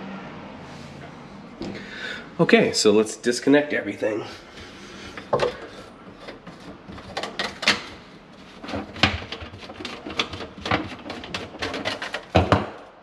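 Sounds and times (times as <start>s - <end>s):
plastic drain pipe clicks and scrapes: 5.1s - 8.0s, 8.6s - 12.8s.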